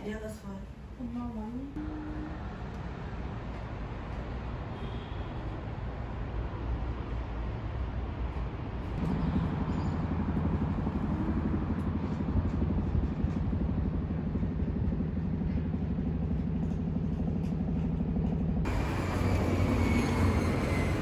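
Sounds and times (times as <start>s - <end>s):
vehicle engine rumbling: 8.0s - 21.0s.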